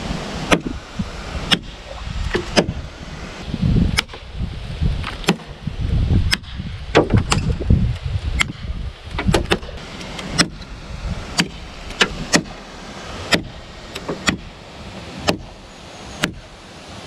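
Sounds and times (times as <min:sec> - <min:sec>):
knife chopping wood: 0:00.5 - 0:00.8, 0:01.5 - 0:02.8, 0:05.0 - 0:05.5, 0:06.3 - 0:07.6, 0:09.2 - 0:10.6, 0:11.4 - 0:12.6, 0:13.3 - 0:14.5, 0:15.2 - 0:15.5, 0:16.2 - 0:16.4.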